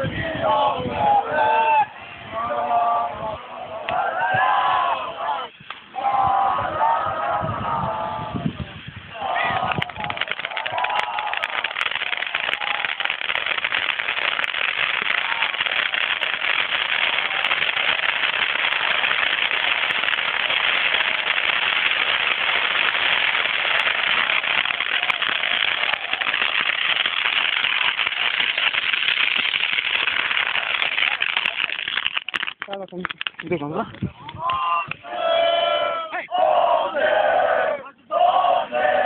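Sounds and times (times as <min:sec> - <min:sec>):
crackling fireworks popping: 0:05.5 - 0:05.9, 0:08.4 - 0:35.0.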